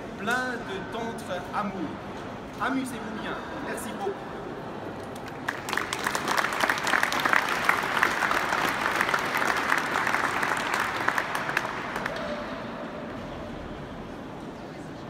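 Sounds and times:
audience applauding: 0:05.2 - 0:12.7.

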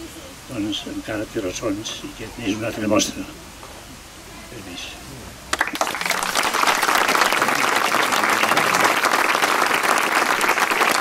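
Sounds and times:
crowd applauding: 0:05.5 - 0:11.0.

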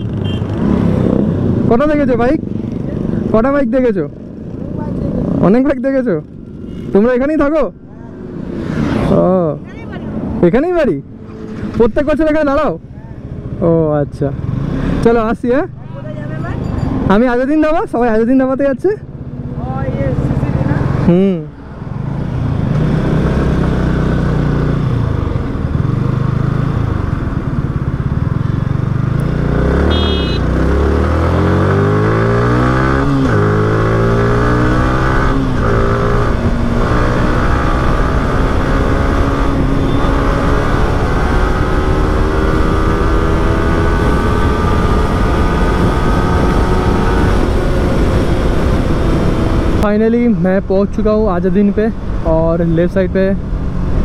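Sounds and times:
motorcycle engine accelerating: 0:13.4 - 0:54.0.

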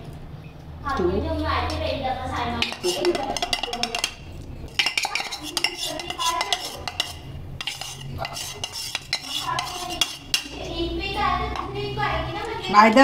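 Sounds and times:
metal spoon scraping ceramic bowl: 0:02.6 - 0:10.6.

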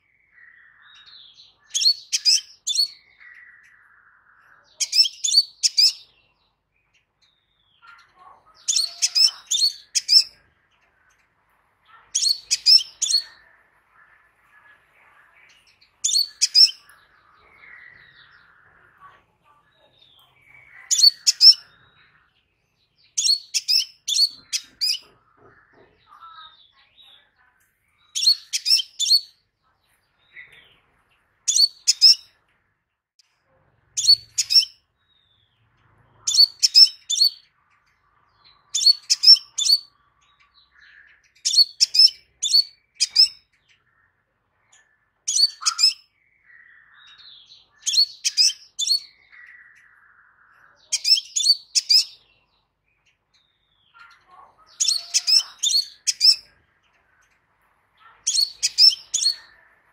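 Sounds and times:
bird chirping rapidly: 0:00.0 - 0:03.9, 0:04.8 - 0:06.4, 0:08.5 - 0:10.5, 0:11.9 - 0:13.5, 0:15.6 - 0:18.6, 0:19.7 - 0:22.0, 0:22.8 - 0:25.2, 0:28.0 - 0:29.4, 0:31.4 - 0:32.3, 0:33.9 - 0:37.5, 0:38.4 - 0:43.9, 0:45.2 - 0:57.0, 0:58.1 - 0:59.6.

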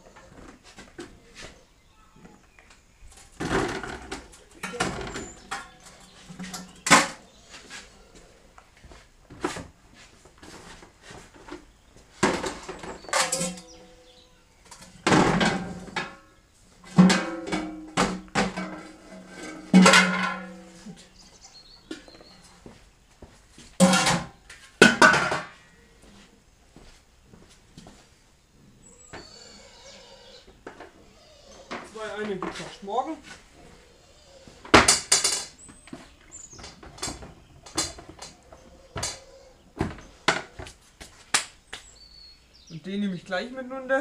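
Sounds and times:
hollow plastic knocks and clatters: 0:02.2 - 0:07.2, 0:11.3 - 0:13.8, 0:34.6 - 0:40.8
potatoes tumbling into buckets: 0:02.2 - 0:08.0, 0:08.8 - 0:13.9, 0:14.6 - 0:22.8, 0:23.6 - 0:25.7, 0:31.6 - 0:33.5, 0:34.5 - 0:41.3.

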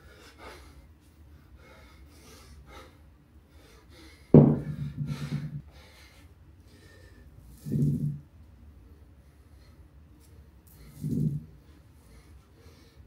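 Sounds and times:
kettlebell clanking on concrete: 0:04.4 - 0:05.6, 0:11.0 - 0:11.5.

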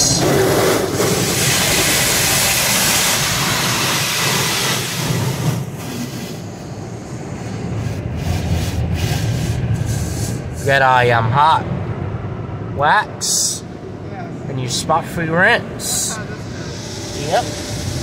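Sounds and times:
high-pressure water jets spraying car: 0:00.0 - 0:06.6, 0:16.2 - 0:18.0
low rumble: 0:06.4 - 0:18.0.

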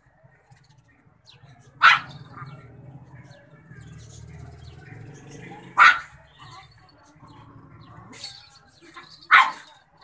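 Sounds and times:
small dog barking: 0:01.8 - 0:02.2, 0:05.7 - 0:06.2, 0:09.3 - 0:09.6
dog yipping: 0:01.8 - 0:02.6, 0:05.7 - 0:06.5, 0:09.2 - 0:09.8.

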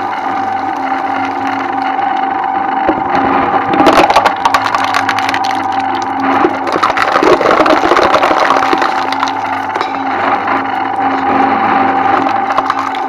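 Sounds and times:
shredder motor hum: 0:00.0 - 0:13.0
shredder blades crunching material: 0:03.7 - 0:13.0.

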